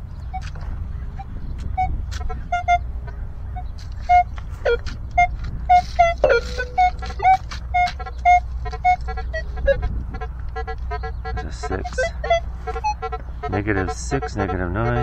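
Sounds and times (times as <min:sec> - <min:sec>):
metal detector beeps: 0:06.2 - 0:07.4.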